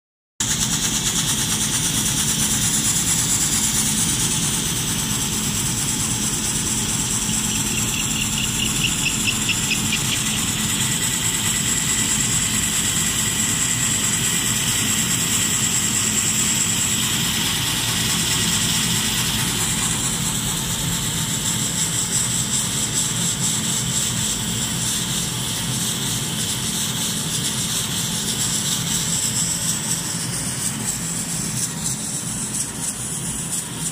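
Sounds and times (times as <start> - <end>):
laser engraver mechanical hum: 0.4 - 33.9
high whine of moving head: 3.0 - 12.4.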